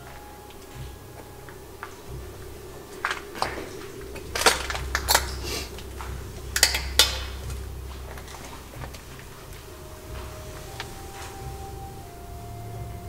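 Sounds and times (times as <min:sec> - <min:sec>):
low steady hum: 0:00.0 - 0:13.0
broken glass and metal debris clinking: 0:02.9 - 0:09.5.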